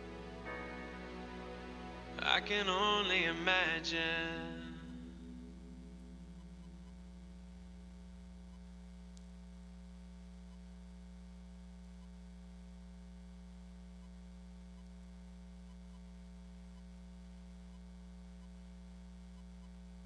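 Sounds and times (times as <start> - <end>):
electrical mains hum: 0.0 - 20.0
faint tick: 8.4 - 10.7, 13.9 - 15.0, 15.6 - 18.7.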